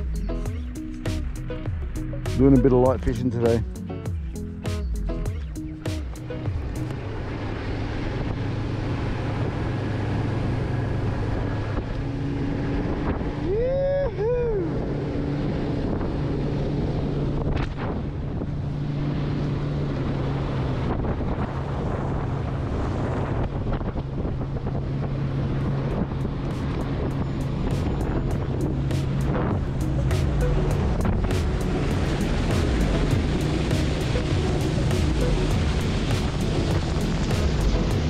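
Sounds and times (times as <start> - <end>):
outboard motor running: 0.0 - 38.0
wind buffeting microphone: 0.0 - 38.0
water rushing past hull: 6.0 - 38.0
pitched cry rising and falling: 13.4 - 14.8.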